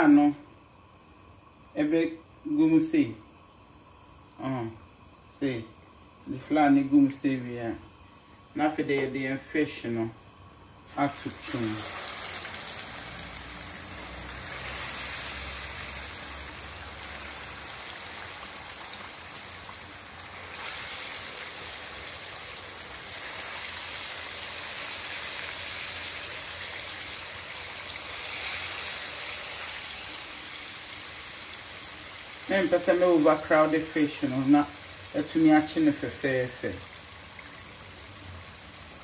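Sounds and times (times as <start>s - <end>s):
fish frying in hot oil: 10.3s - 39.0s.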